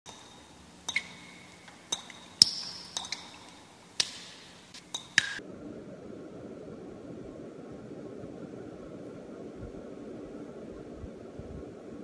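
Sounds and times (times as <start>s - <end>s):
water dripping into sink: 0.1s - 5.4s
steady low rushing noise: 4.6s - 12.0s.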